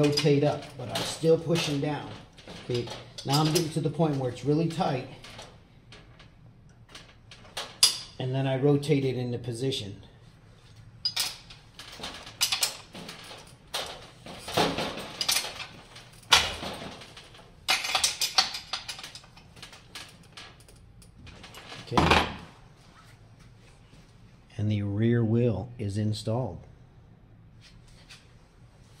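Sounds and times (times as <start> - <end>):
wrench clinking on metal: 0.0 - 4.0, 6.9 - 8.2
tool set down on workbench: 21.9 - 22.5.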